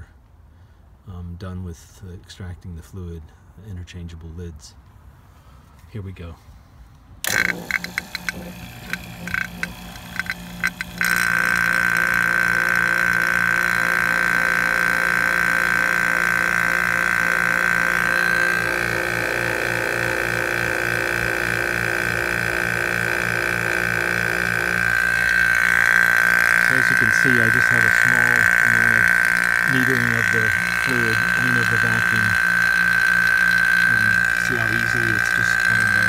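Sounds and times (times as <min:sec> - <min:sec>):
vacuum pump whining: 0:07.2 - 0:36.0.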